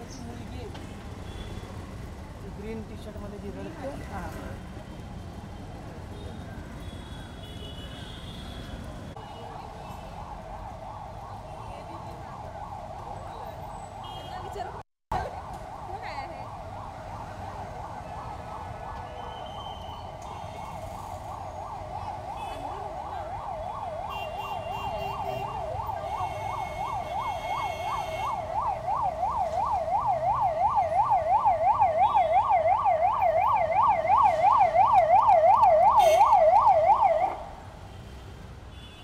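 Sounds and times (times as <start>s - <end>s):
ambulance siren: 6.8s - 37.6s.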